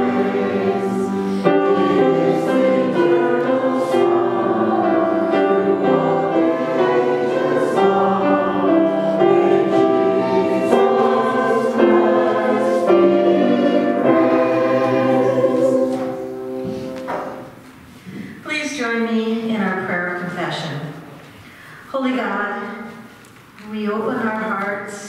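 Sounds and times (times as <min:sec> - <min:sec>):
choir singing a hymn: 0:00.0 - 0:17.6.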